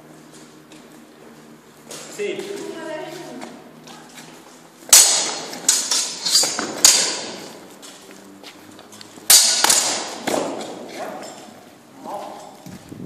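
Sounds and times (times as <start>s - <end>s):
steel swords clashing: 4.9s - 7.6s, 9.3s - 11.6s.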